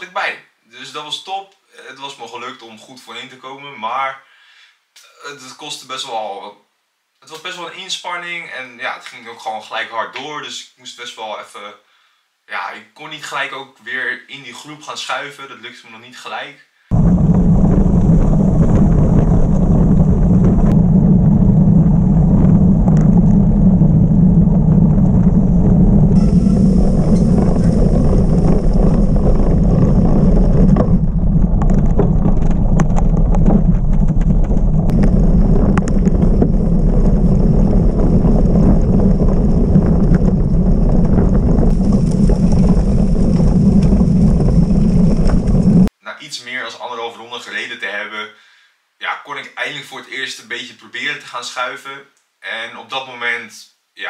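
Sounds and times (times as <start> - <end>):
bike tyres rolling over dirt: 16.9 - 45.9
wind buffeting microphone: 16.9 - 45.9.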